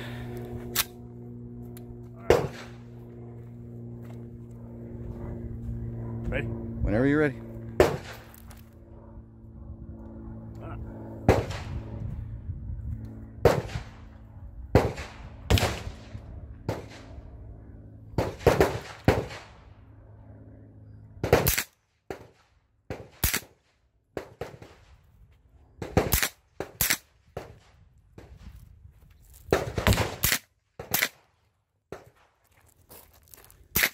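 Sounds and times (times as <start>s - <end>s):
suppressed pistol shots: 22.9s - 23.6s, 25.8s - 27.6s, 29.5s - 31.2s.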